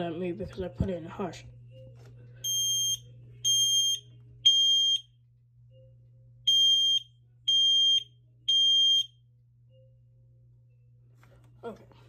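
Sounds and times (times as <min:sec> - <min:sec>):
smoke alarm beeping: 0:02.4 - 0:05.2, 0:06.4 - 0:09.3.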